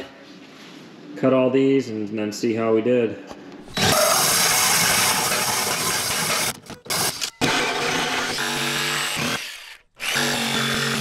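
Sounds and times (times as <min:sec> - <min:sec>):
drill hole saw cutting wood: 0:03.7 - 0:11.0
drill motor whine: 0:03.7 - 0:11.0.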